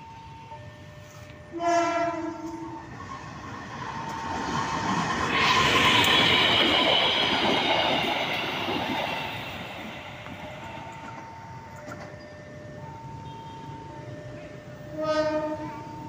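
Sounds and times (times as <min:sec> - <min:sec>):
diesel train passing: 0:00.0 - 0:16.0.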